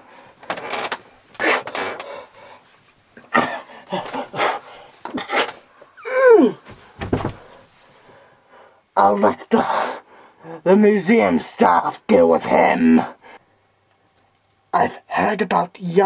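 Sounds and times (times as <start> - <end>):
person panting and grunting: 3.3 - 6.6.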